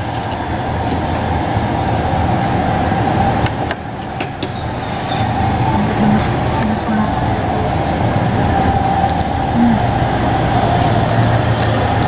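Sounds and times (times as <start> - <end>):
steady background rumble and hiss: 5.5 - 8.4.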